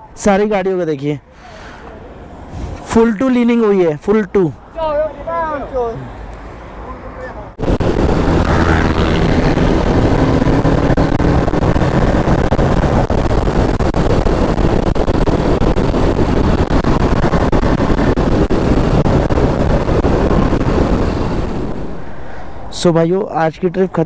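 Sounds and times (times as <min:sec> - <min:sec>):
wind and road noise rushing: 0:00.0 - 0:24.0
motorcycle engine running: 0:07.6 - 0:21.8.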